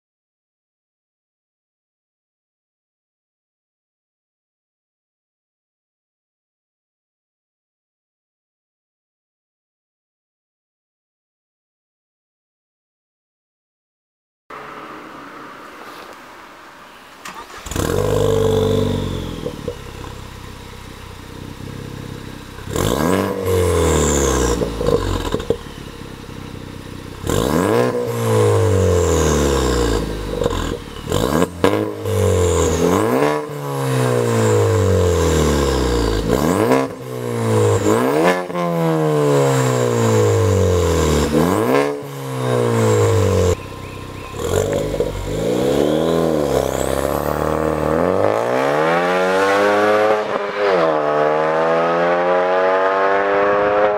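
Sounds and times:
car engine starting and revving: 0:14.5 - 0:53.9.

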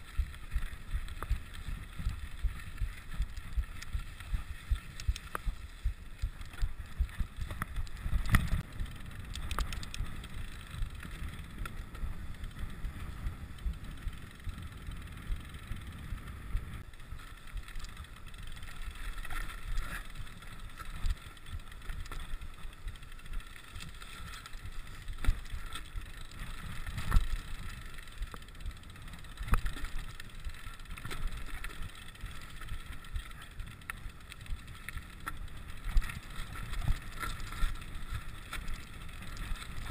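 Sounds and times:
bike tyre rumble on gravel: 0:00.0 - 0:39.9.

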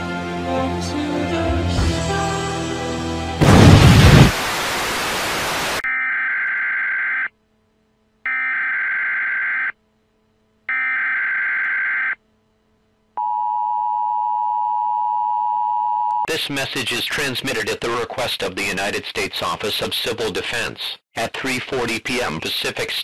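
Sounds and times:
television static hiss: 0:03.5 - 0:05.8.

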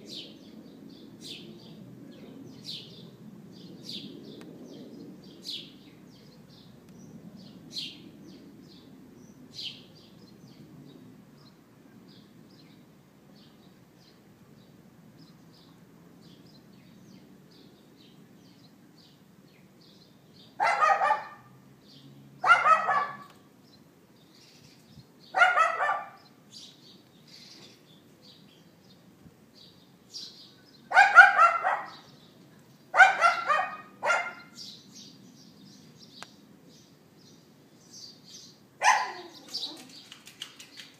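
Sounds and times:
small birds chirping: 0:00.0 - 0:40.9
small dog barking: 0:20.6 - 0:21.6, 0:22.4 - 0:23.4, 0:25.3 - 0:26.3, 0:30.9 - 0:32.1, 0:32.9 - 0:34.6, 0:38.8 - 0:39.9.

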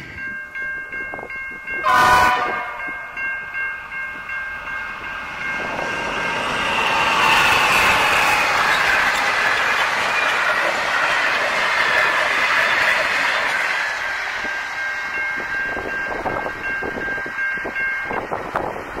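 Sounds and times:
level crossing warning bell: 0:00.0 - 0:07.2, 0:12.3 - 0:19.0
train rolling on rails: 0:00.0 - 0:19.0.

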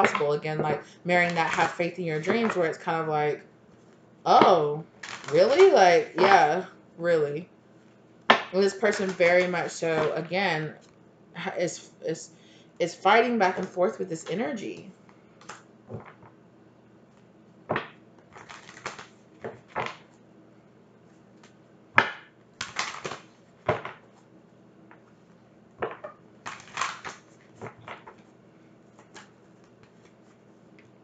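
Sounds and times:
cards being shuffled: 0:03.8 - 0:06.5, 0:08.3 - 0:10.9, 0:13.5 - 0:16.4, 0:17.1 - 0:20.2, 0:21.1 - 0:24.2, 0:25.8 - 0:31.0.

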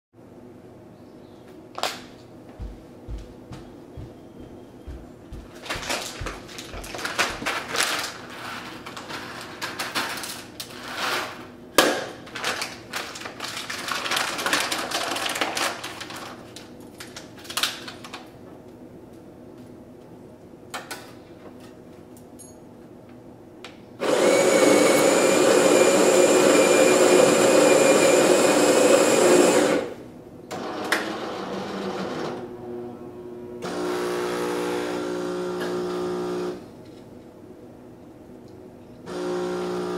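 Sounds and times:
water pump buzzing hum: 0:02.5 - 0:07.5, 0:24.0 - 0:36.8, 0:39.0 - 0:39.9
coffee grinder whirring: 0:24.0 - 0:30.0, 0:33.7 - 0:36.6, 0:39.1 - 0:39.9
espresso brew unit running: 0:24.0 - 0:32.8, 0:33.6 - 0:36.7, 0:39.0 - 0:39.9.

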